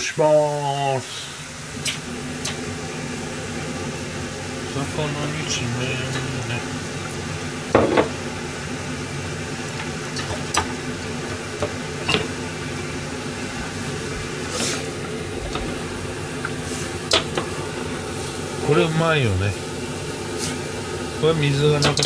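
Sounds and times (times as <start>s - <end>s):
low hum: 1.3s - 22.0s
liquid simmering bubbling: 6.6s - 18.6s.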